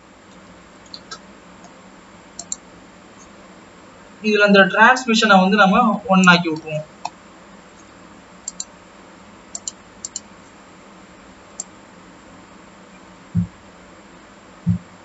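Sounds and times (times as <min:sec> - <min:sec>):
low hiss: 0:00.0 - 0:15.0
computer mouse clicks: 0:02.4 - 0:02.6, 0:08.5 - 0:08.7, 0:09.5 - 0:10.3.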